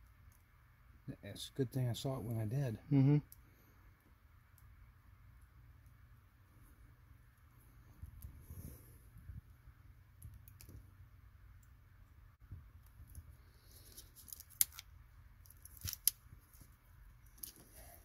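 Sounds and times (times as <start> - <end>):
faint rustling of handling: 12.9 - 14.8, 15.4 - 18.0.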